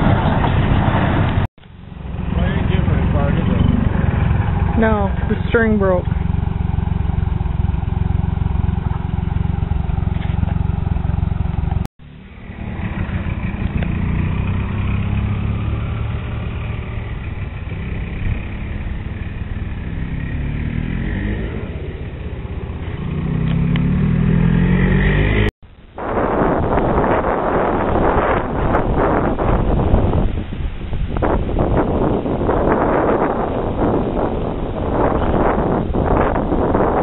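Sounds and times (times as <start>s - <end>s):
tractor engine running: 0.0s - 19.9s.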